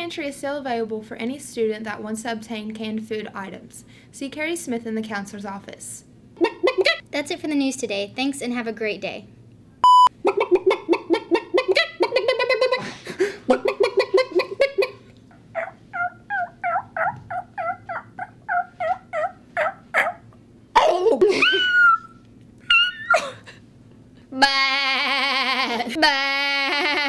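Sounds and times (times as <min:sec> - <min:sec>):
person imitating turkey gobble: 0:06.4 - 0:07.0, 0:10.2 - 0:12.8, 0:13.5 - 0:15.0, 0:15.6 - 0:20.2, 0:24.4 - 0:27.0
person making clucking calls: 0:06.4 - 0:07.0, 0:10.2 - 0:21.0
high gliding vocal call: 0:15.5 - 0:20.2.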